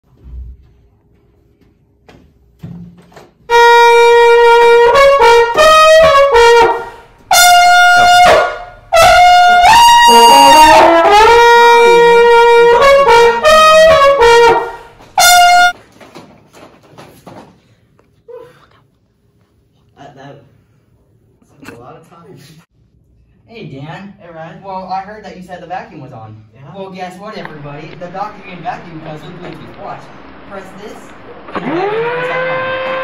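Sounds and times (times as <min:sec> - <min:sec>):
solo brass melody: 0:03.5 - 0:15.8, 0:27.4 - 0:33.0.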